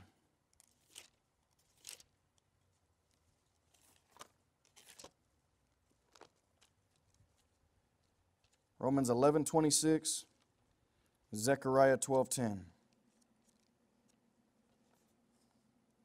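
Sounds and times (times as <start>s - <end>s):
book pages turning: 0.5s - 8.8s, 12.9s - 15.5s.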